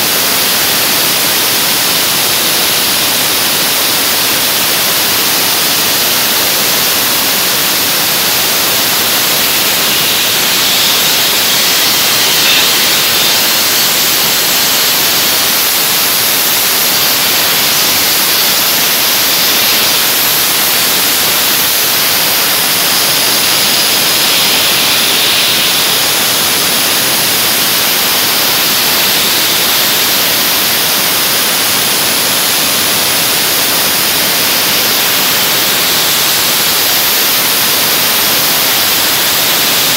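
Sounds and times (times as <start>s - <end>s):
dry ice blasting hiss: 0.0s - 39.9s.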